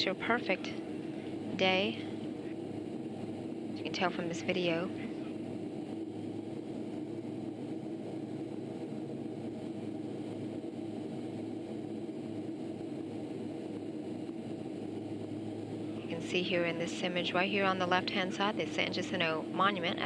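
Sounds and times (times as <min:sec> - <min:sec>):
constant low hum: 0:00.0 - 0:20.0
jet engines droning: 0:00.0 - 0:20.0
rushing air: 0:00.7 - 0:17.3.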